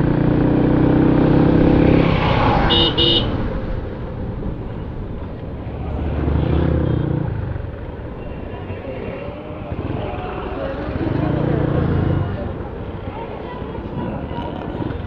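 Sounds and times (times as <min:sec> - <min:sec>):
road traffic: 0:00.0 - 0:15.0
horn beeps: 0:02.7 - 0:03.4.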